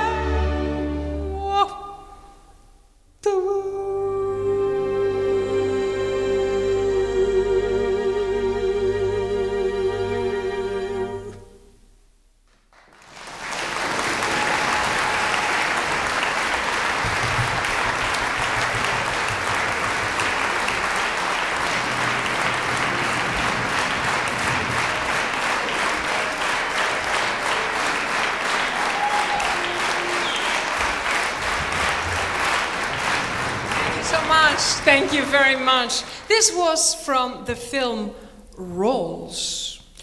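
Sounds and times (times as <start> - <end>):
music: 0.0 - 2.5, 3.4 - 12.0, 16.1 - 35.7
audience applauding: 12.5 - 36.4.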